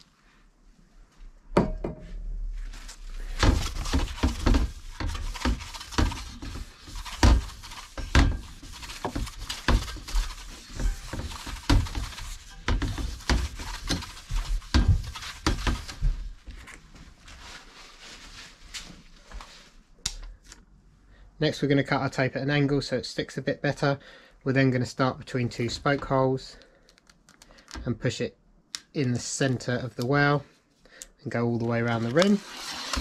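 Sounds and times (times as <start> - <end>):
wheel knocks and clatters: 3.2 - 16.2
rag scrubbing wheel rim: 3.3 - 16.0, 32.3 - 33.0.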